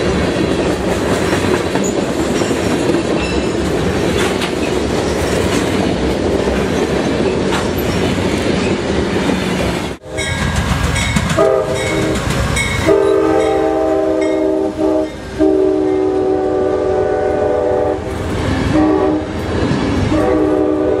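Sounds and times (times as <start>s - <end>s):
passing train rumble and clatter: 0.0s - 21.0s
locomotive air horn blasts: 10.0s - 10.5s, 11.3s - 19.4s, 20.1s - 21.0s.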